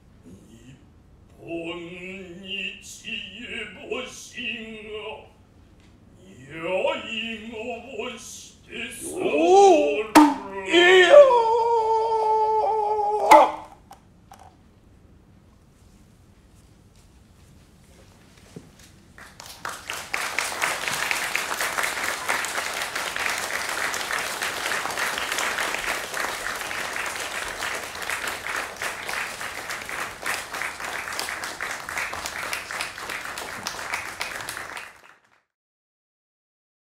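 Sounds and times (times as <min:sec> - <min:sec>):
audience applauding: 0:19.2 - 0:35.4.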